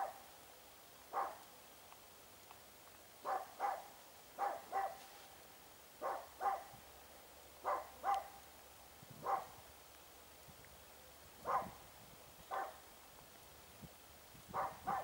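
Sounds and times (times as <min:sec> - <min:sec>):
dog barking: 0:01.1 - 0:01.4, 0:03.2 - 0:05.0, 0:06.0 - 0:06.7, 0:07.6 - 0:08.4, 0:09.2 - 0:09.5, 0:11.4 - 0:11.8, 0:12.5 - 0:12.8, 0:14.5 - 0:15.0.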